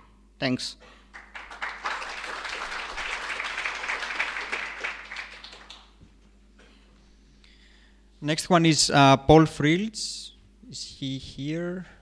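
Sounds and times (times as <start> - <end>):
audience applauding: 1.1 - 6.0.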